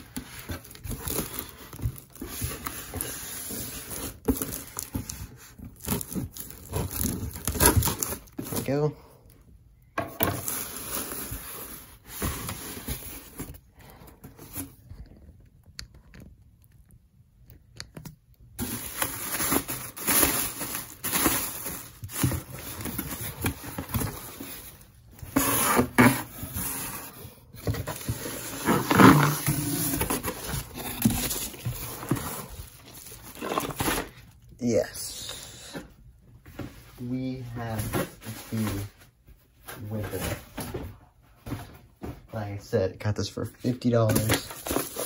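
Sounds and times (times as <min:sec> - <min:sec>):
plastic packing rustling and crinkling: 0:00.0 - 0:09.0, 0:18.6 - 0:35.0, 0:36.4 - 0:42.5, 0:43.6 - 0:45.0.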